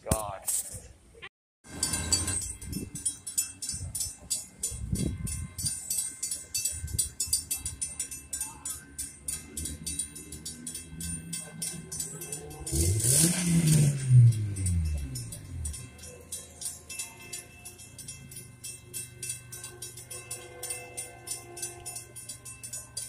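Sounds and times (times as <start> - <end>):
railroad crossing bell ringing: 1.6 - 23.0
cars passing: 1.7 - 23.0.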